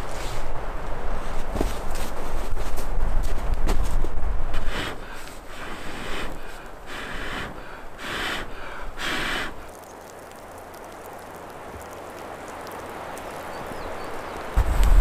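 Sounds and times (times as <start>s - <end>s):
soft steady hiss: 0.0s - 15.0s
person blowing on embers: 4.5s - 9.8s.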